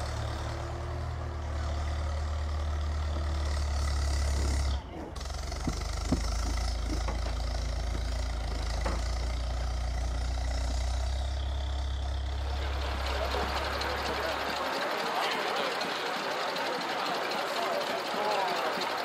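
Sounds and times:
tractor engine running: 0:00.0 - 0:19.0.

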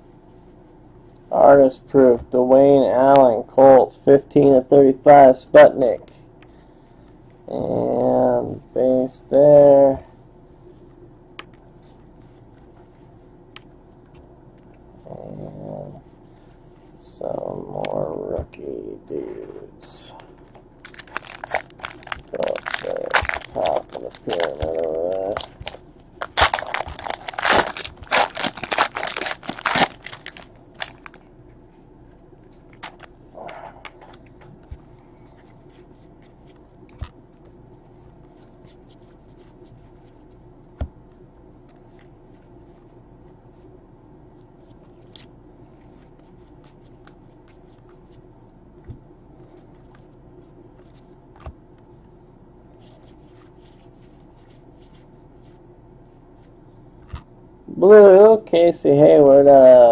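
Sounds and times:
foil pack tearing and crinkling: 0:20.8 - 0:31.2, 0:32.8 - 0:33.1.

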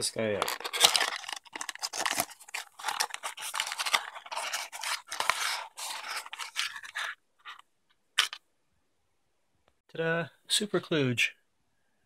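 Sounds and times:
packaging rustle: 0:00.2 - 0:07.6
cardboard scraping and rubbing: 0:00.3 - 0:07.6.

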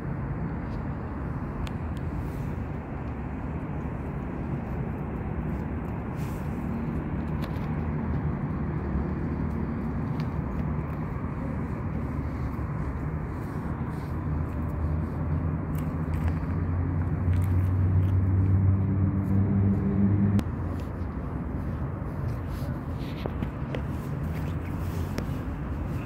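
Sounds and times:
background traffic noise: 0:00.0 - 0:26.0
motor vehicle engine rumble: 0:00.0 - 0:26.0.

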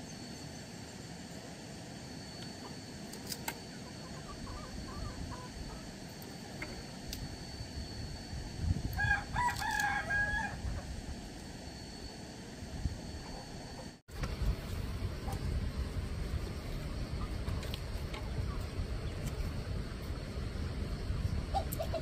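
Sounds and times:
rooster crowing: 0:08.9 - 0:10.9.

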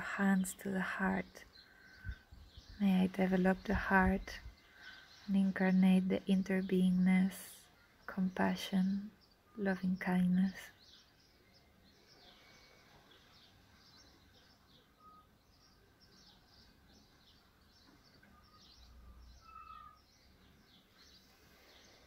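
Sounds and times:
small birds chirping: 0:00.0 - 0:22.0
whistled bird notes: 0:14.0 - 0:16.4.

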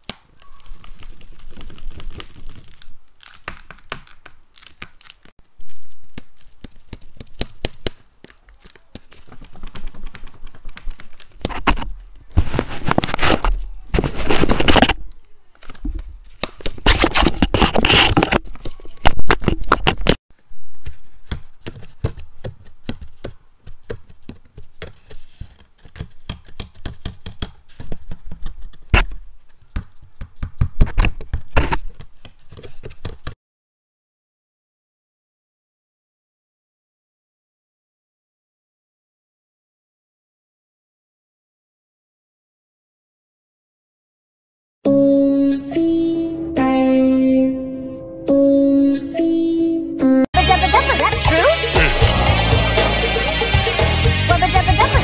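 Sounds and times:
paper clicking and scraping: 0:00.0 - 0:20.2, 0:20.8 - 0:29.7, 0:30.8 - 0:33.4
paper crunching and rustling: 0:00.0 - 0:20.2.

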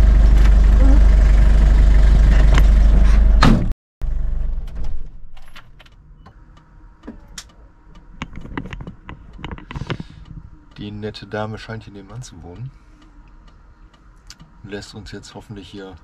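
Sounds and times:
engine and road rumble: 0:00.0 - 0:16.0
small clicks and knocks: 0:07.0 - 0:10.4.

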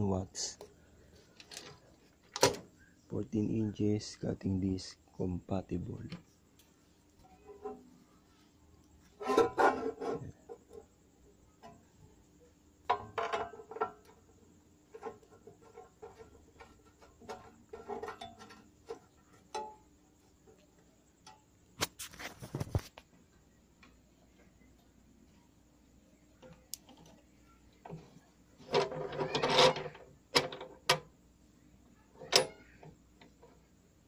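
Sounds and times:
knocks and rattles of handled parts: 0:00.4 - 0:02.7, 0:12.8 - 0:20.6, 0:26.4 - 0:31.2.

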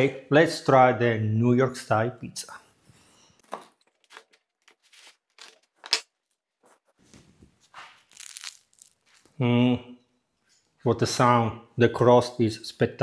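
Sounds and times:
crust being bitten: 0:08.0 - 0:09.4.

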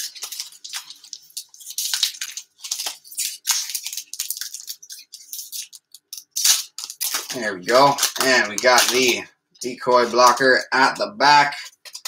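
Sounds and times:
wrapper crinkling and tearing: 0:00.0 - 0:12.0.

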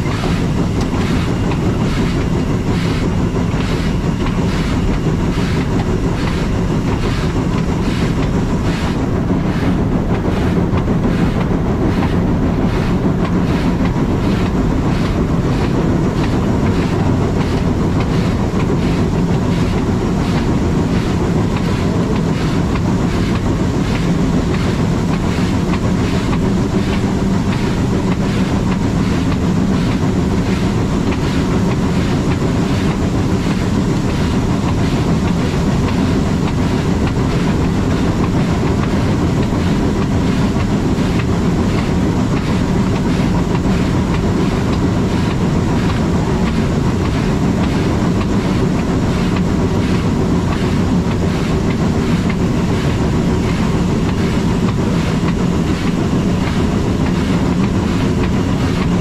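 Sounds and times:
steam train rumbling along track: 0:00.0 - 0:59.0.

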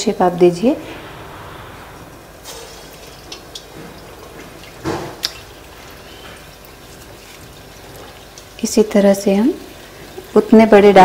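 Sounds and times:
hot oil sizzling: 0:00.0 - 0:11.0
batter splashing into oil: 0:02.2 - 0:10.6.

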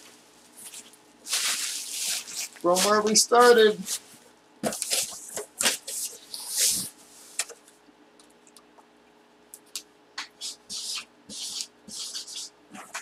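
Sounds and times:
marker scratching on cardboard: 0:10.2 - 0:13.0.

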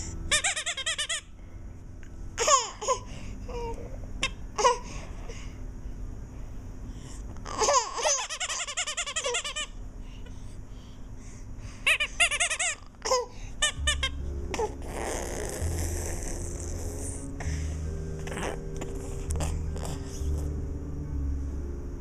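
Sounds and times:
low hum with hiss: 0:00.0 - 0:22.0
baby giggling: 0:07.5 - 0:09.7, 0:11.9 - 0:16.4.

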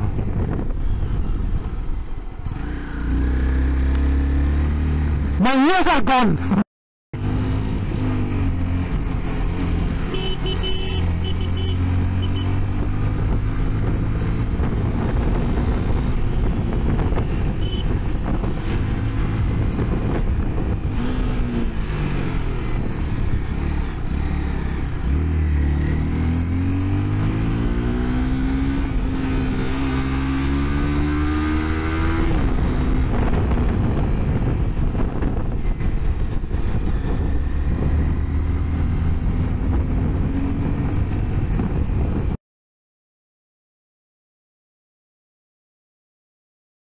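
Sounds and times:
wind noise: 0:00.0 - 0:03.7, 0:12.5 - 0:25.3, 0:25.9 - 0:42.4
motorcycle engine revving: 0:00.0 - 0:05.4, 0:07.2 - 0:42.4.

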